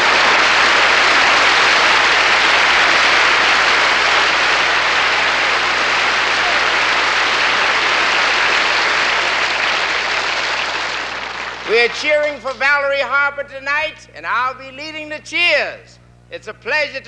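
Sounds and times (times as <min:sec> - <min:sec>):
audience applauding: 0:00.0 - 0:12.4.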